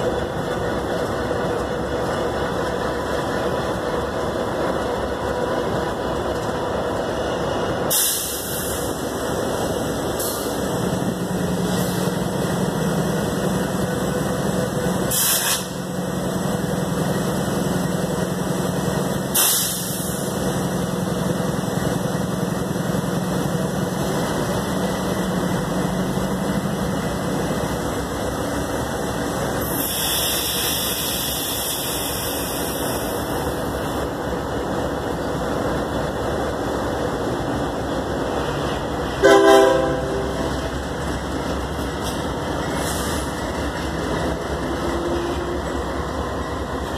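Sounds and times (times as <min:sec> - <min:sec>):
diesel locomotive idling: 0:00.0 - 0:46.9
air hiss: 0:07.9 - 0:08.9, 0:15.1 - 0:15.8, 0:19.3 - 0:20.2, 0:29.6 - 0:33.0
locomotive air horn blast: 0:39.2 - 0:40.4.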